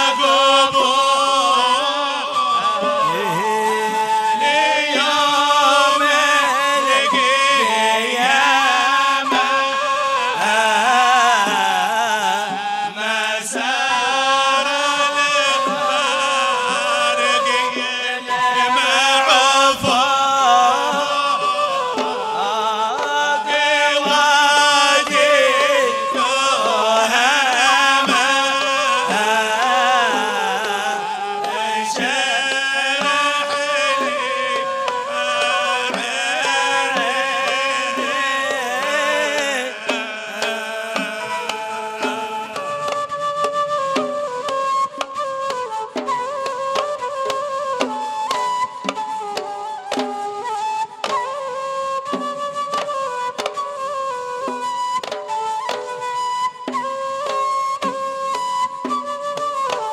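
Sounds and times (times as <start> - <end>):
men chanting into microphones: 0.0 - 43.2.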